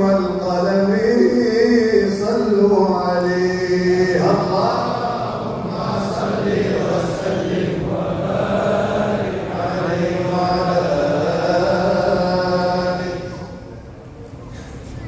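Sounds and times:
man singing a devotional chant: 0.0 - 13.6
men chanting in unison: 0.0 - 13.6.

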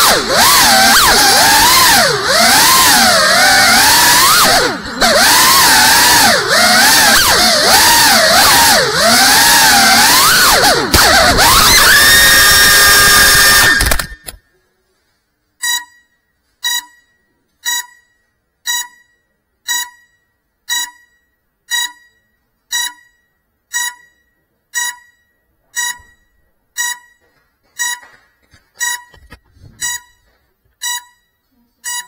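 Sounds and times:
short electronic beeps: 15.6 - 28.2, 28.8 - 32.0.

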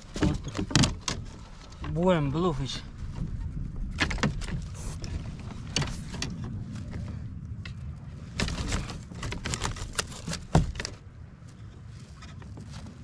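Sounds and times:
knocks and clicks from handling fish: 0.0 - 1.9, 3.9 - 6.4, 8.4 - 11.0
steady low rumble: 1.2 - 13.0.

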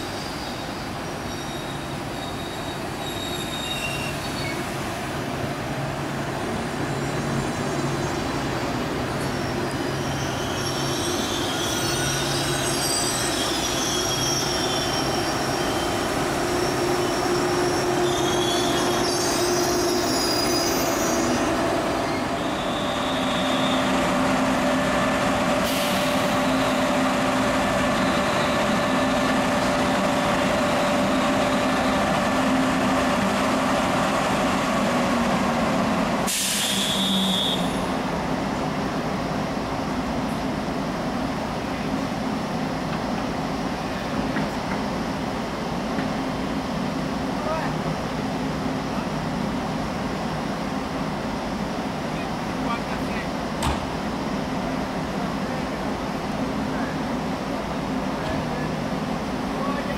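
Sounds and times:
train wheels squealing: 0.0 - 4.8, 6.8 - 27.1, 27.7 - 30.0, 36.4 - 38.0
stationary train humming: 0.0 - 59.9.

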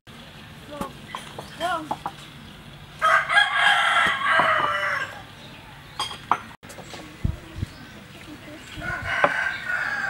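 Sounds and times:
rooster crowing: 3.0 - 5.3, 8.8 - 10.0.

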